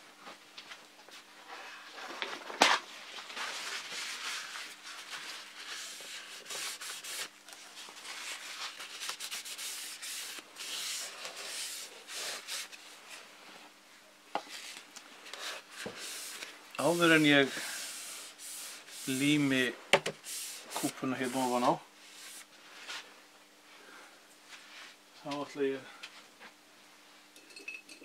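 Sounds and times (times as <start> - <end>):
sandpaper rubbing: 3.4 - 12.8, 15.4 - 19.6, 20.2 - 22.5.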